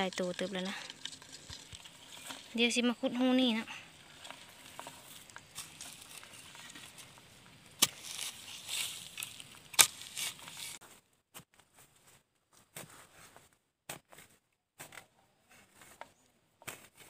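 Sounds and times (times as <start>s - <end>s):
rustling and crackling leaves: 0.0s - 13.5s
digging tool in dry soil: 0.0s - 17.0s.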